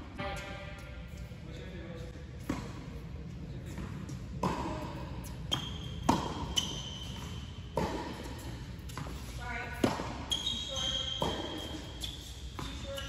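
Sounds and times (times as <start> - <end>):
short high shoe squeaks: 5.5 - 7.5, 10.3 - 13.0.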